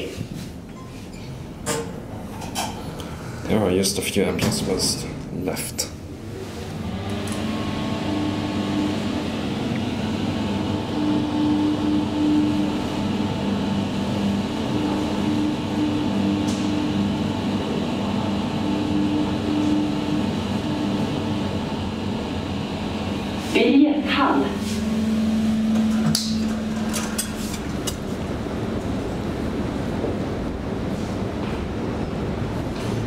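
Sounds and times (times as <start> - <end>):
elevator mechanical hum: 0.0 - 33.0.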